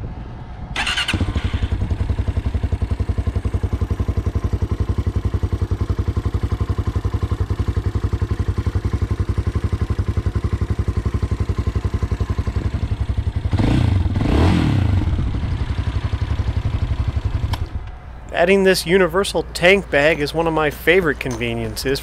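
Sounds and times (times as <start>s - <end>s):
motorcycle engine idling: 0.9s - 18.3s.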